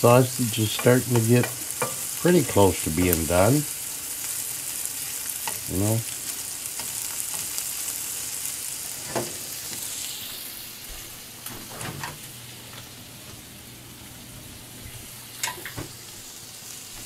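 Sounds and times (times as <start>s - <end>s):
sausage and onions sizzling in a pan: 0.0s - 17.0s
spatula stirring in a pan: 0.8s - 2.7s, 3.8s - 9.4s.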